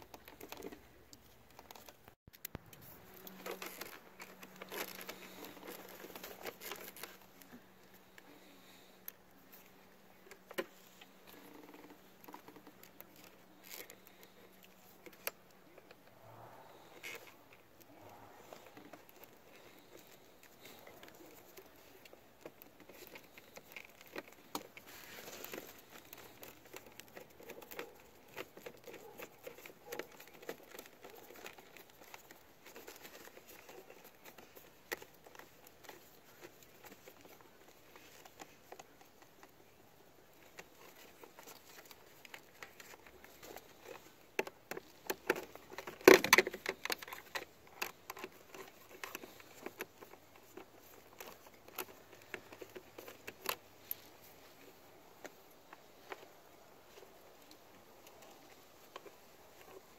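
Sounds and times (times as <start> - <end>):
small clicks and taps of wires: 16.8 - 59.9.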